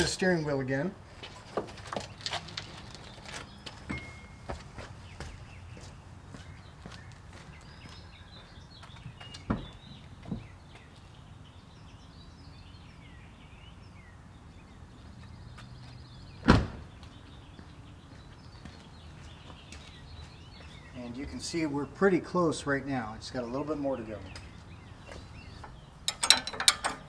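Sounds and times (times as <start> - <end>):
birds chirping faintly: 0.0 - 27.0
truck door slamming: 16.4 - 17.0.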